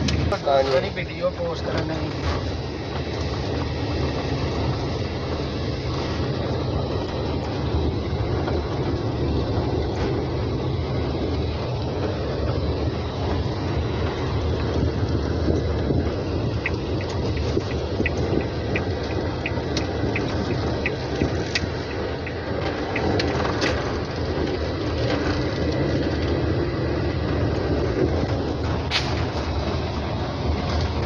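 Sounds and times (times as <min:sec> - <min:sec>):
car engine and road noise: 0:00.0 - 0:31.0
light regular ticking: 0:13.3 - 0:26.5.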